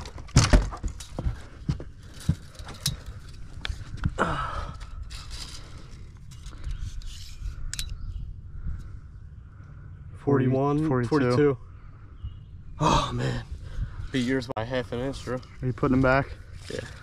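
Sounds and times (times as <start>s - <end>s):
breathing: 4.2s - 7.1s, 8.4s - 10.2s, 13.0s - 14.2s.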